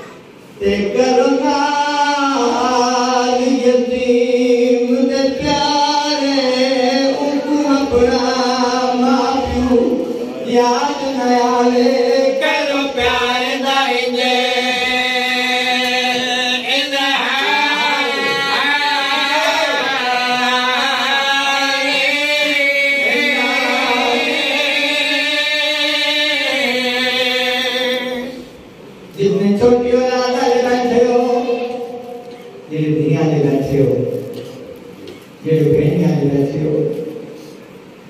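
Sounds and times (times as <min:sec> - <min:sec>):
men singing a devotional chant: 0:00.6 - 0:28.5.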